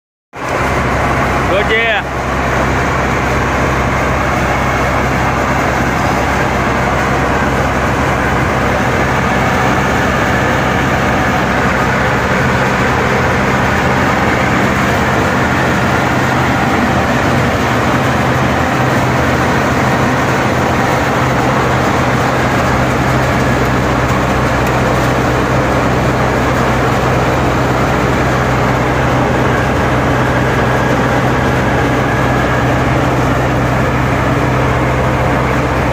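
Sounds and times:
low motor hum: 0.4 - 35.9.

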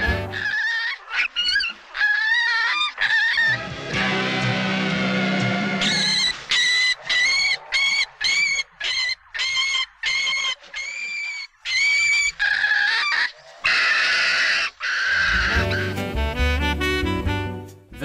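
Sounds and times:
small animal squealing: 0.2 - 3.7, 5.8 - 15.9.

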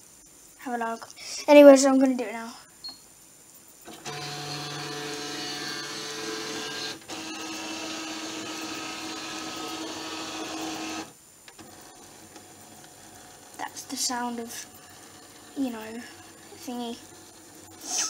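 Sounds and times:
scanner motor whirring: 3.9 - 18.0.

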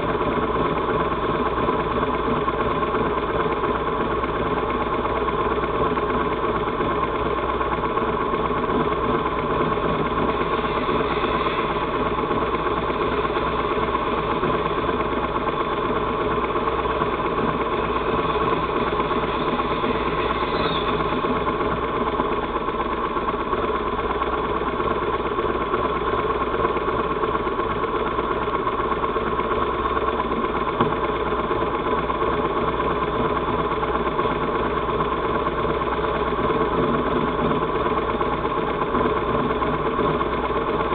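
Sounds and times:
motorcycle engines idling: 0.0 - 40.9
distant motorcycle revving: 8.7 - 22.6.

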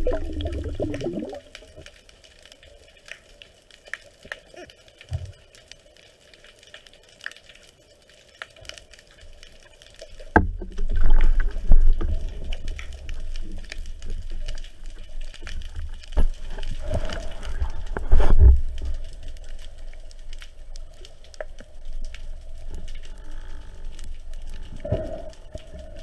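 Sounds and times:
underwater water churning rumble: 0.0 - 1.8
faint scattered clicks: 1.4 - 26.0.

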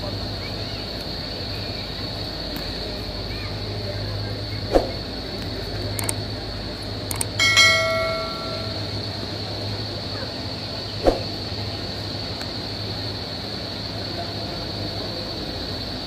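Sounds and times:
low machine hum: 2.8 - 12.2
bell ringing: 7.1 - 8.9.

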